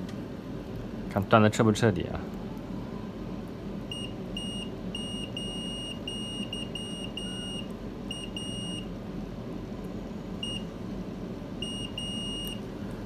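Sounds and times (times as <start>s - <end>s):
multimeter continuity beeps: 3.9s - 8.9s, 10.4s - 10.7s, 11.6s - 12.6s.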